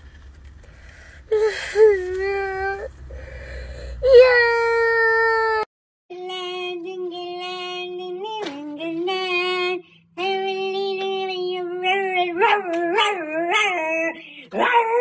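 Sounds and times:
child singing long notes: 0:06.1 - 0:15.0.

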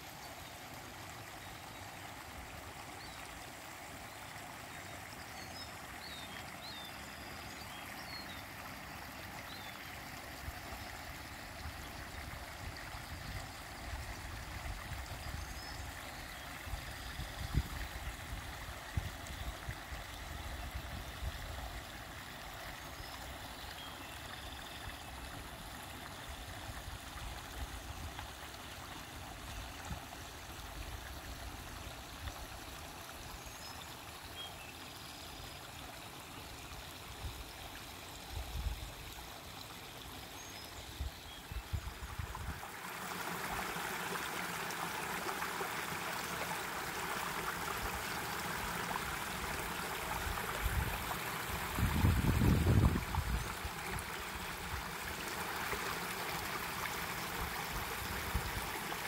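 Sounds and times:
creek gurgling over rocks: 0:00.0 - 0:59.0.

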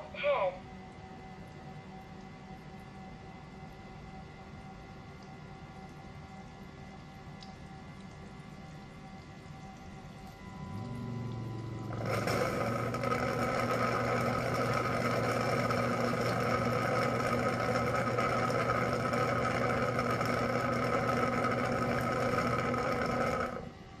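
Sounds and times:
robot vacuum motor humming: 0:10.6 - 0:23.7.

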